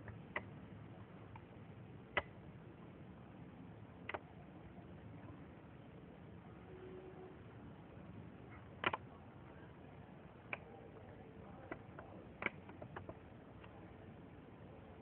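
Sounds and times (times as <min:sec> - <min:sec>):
faint steady hiss: 0:00.0 - 0:15.0
sharp clicks and taps: 0:11.6 - 0:13.8.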